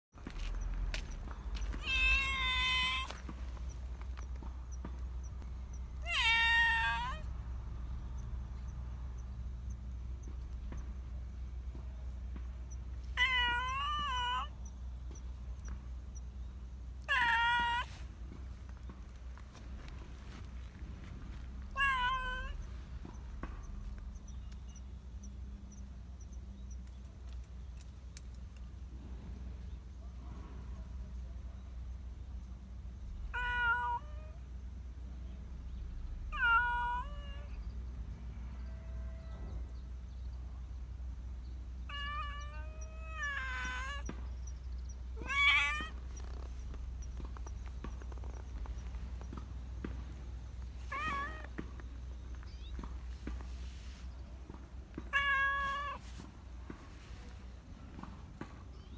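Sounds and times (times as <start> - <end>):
cat meowing: 1.7 - 3.2, 6.0 - 7.3, 13.2 - 14.6, 17.0 - 17.9, 21.7 - 23.2, 33.3 - 34.4, 36.3 - 37.6, 41.9 - 44.1, 45.2 - 46.6, 50.8 - 51.6, 55.0 - 56.1.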